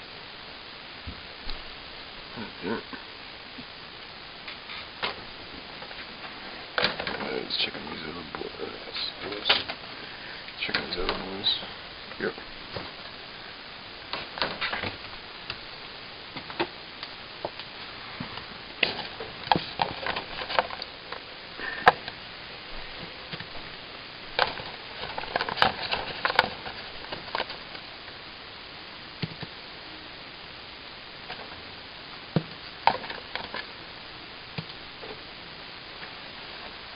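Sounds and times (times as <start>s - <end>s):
guinea pigs crunching food: 16.5s - 22.2s, 24.3s - 28.2s.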